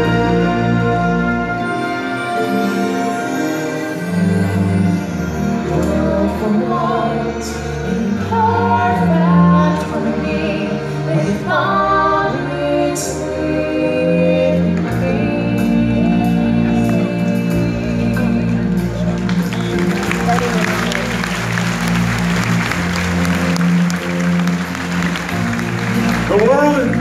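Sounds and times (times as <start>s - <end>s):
band playing: 0.0s - 7.2s, 13.4s - 27.0s.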